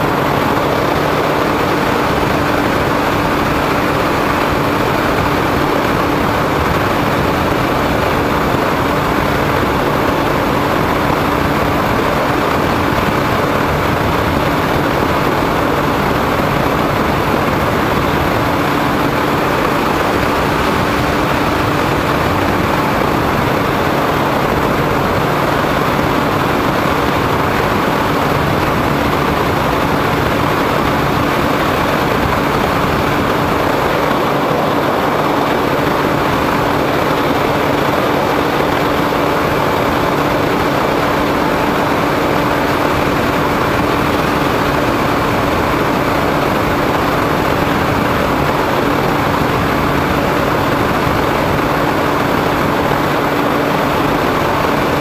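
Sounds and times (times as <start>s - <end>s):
model plane motor and propeller: 0.0s - 55.0s
rushing wind: 0.0s - 55.0s.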